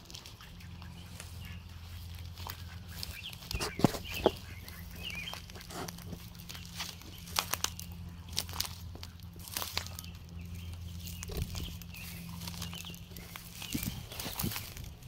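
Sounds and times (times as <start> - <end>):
branches cracking: 0.0 - 15.0
footsteps crunching through twigs: 0.0 - 15.0
steady low hum: 0.0 - 15.0.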